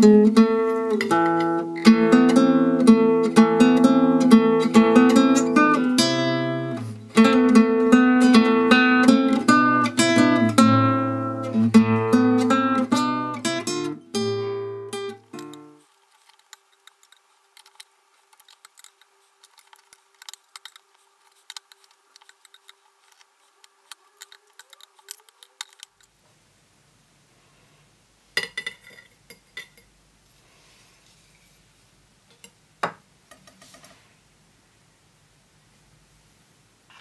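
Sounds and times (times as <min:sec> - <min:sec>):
small objects clicking and tapping: 0:15.3 - 0:26.1, 0:32.3 - 0:34.0.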